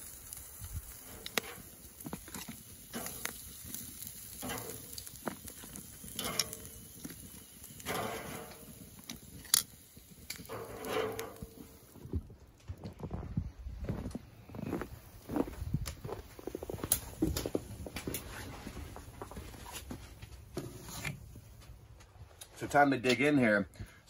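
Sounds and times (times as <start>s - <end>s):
meat sizzling: 0.0s - 12.1s
wood fire crackling: 0.0s - 24.0s
metal tongs clicking on grill grate: 0.3s - 11.6s.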